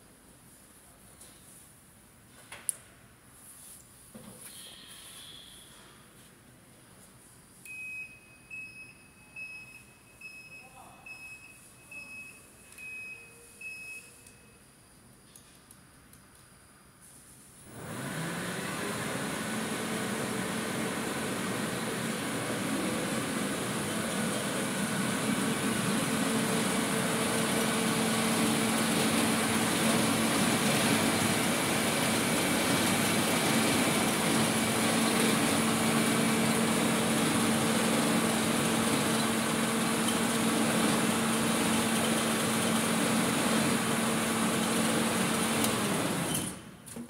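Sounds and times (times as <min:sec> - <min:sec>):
electric motor humming and whining: 0:17.7 - 0:39.9.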